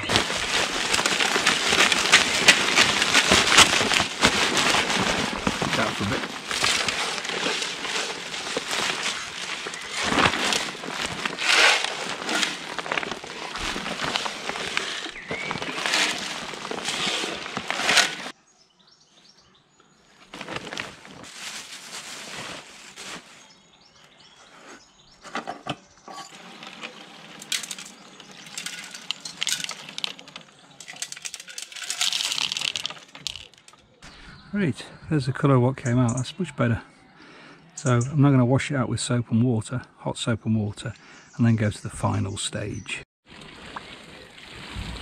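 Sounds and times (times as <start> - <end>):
gravel rattling and sloshing in tank: 0.0 - 18.3, 26.3 - 33.8.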